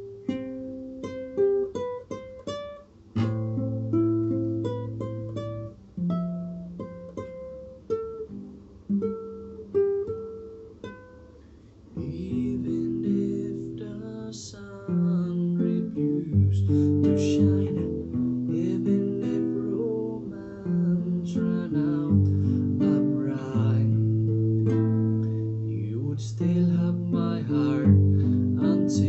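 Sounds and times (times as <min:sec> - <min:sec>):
fingerpicked classical guitar: 0:00.0 - 0:29.0
man singing in low voice: 0:12.0 - 0:29.0.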